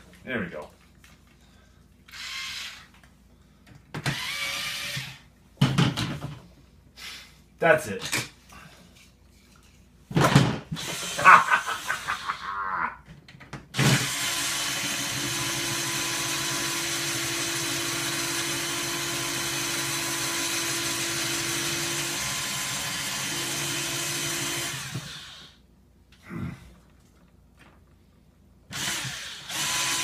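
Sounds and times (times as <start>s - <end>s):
electric screwdriver running: 2.1s - 2.9s, 4.1s - 5.2s, 28.7s - 30.0s.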